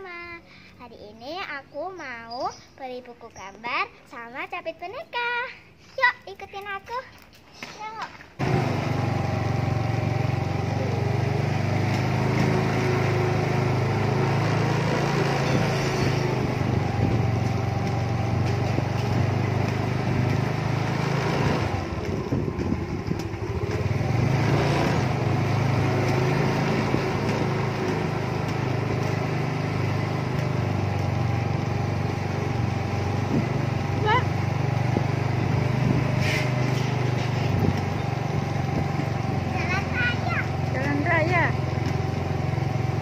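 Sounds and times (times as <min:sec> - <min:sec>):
small motorbike engine running: 0:08.4 - 0:43.0.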